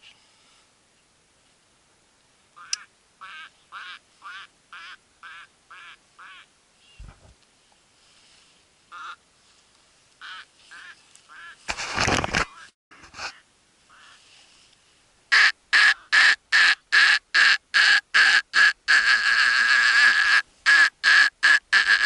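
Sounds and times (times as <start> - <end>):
duck quacking: 2.6 - 6.5, 10.2 - 11.6, 13.3 - 14.2, 15.3 - 22.0.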